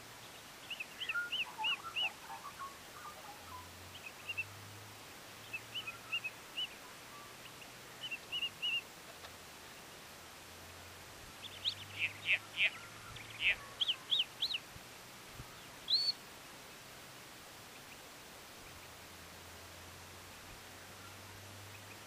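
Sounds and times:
birds chirping high: 0.0s - 4.6s, 5.3s - 10.0s, 11.3s - 16.9s
soft low bird twittering: 0.0s - 4.7s, 5.4s - 8.9s, 11.3s - 14.7s, 15.4s - 16.9s, 20.2s - 22.0s.

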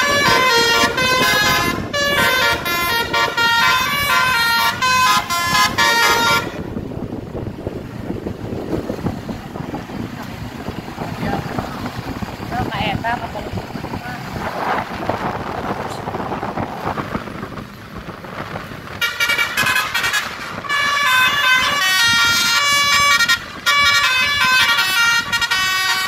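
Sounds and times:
multi-tone bus horn melody: 0.0s - 7.0s, 18.9s - 26.0s
road traffic: 0.0s - 26.0s.

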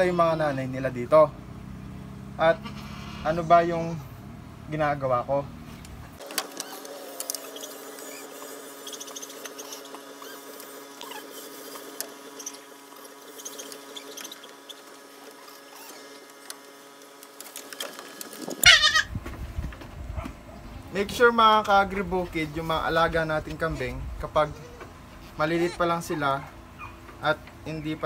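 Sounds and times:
goat bleating: 18.6s - 19.1s.

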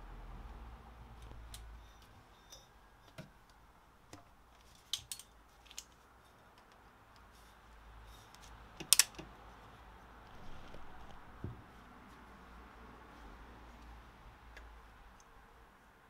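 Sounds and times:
small metallic clicks: 3.4s - 7.3s, 8.3s - 9.3s.

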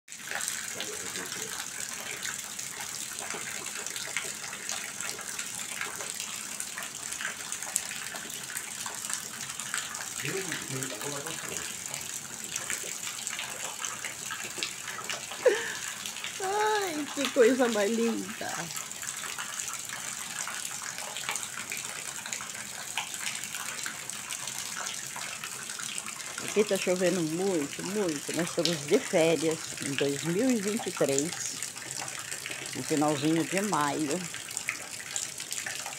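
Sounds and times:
water dripping off a roof: 0.1s - 35.9s
heavy rain hiss: 10.2s - 11.9s, 15.4s - 18.7s.

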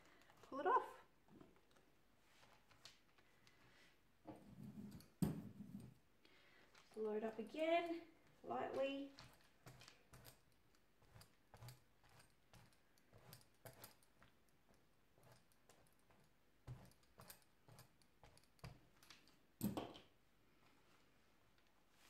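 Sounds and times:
rubber roller clicking and rubbing: 7.8s - 19.3s.

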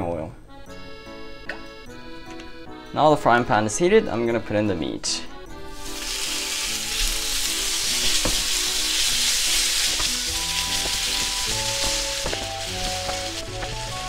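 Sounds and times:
meat sizzling in hot oil: 5.7s - 14.0s
wooden spatula in pan: 5.9s - 14.0s.

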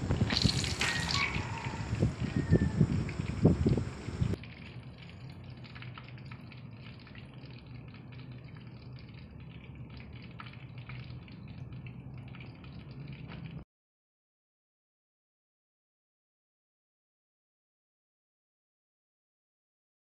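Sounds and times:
low hum: 0.0s - 4.4s
fish deep-frying in oil: 0.0s - 13.6s.

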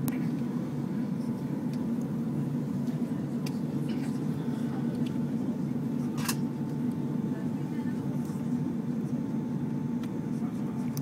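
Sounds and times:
airplane cabin drone: 0.0s - 11.0s
faint steady whine: 0.0s - 11.0s.

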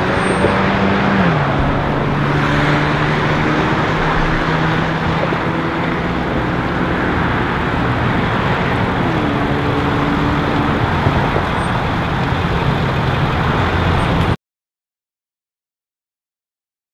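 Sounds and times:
freeway traffic: 0.0s - 14.4s
vehicle engine idling: 1.4s - 14.4s.

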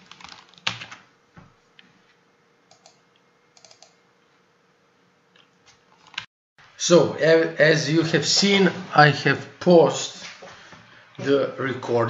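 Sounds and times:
faint steady hum: 0.0s - 12.0s
keyboard and mouse clicks: 2.7s - 3.0s, 3.6s - 3.9s.

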